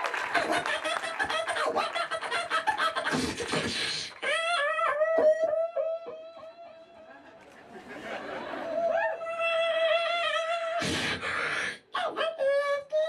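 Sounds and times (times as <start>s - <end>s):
beatboxing into microphone: 0.3s - 7.0s, 9.2s - 13.0s
pitched vocal tune: 9.2s - 13.0s.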